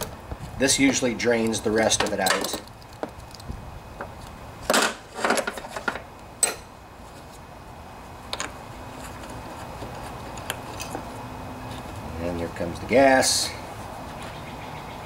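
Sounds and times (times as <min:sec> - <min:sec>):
clattering handling noises: 0:00.8 - 0:07.4, 0:08.3 - 0:12.0.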